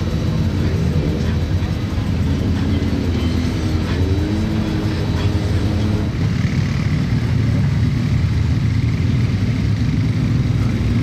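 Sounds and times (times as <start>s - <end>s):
off-road vehicle engines running: 0.0s - 11.0s.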